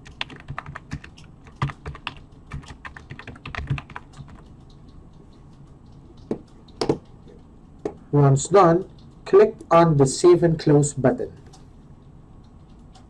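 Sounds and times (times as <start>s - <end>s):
typing on computer keyboard: 0.0s - 5.0s.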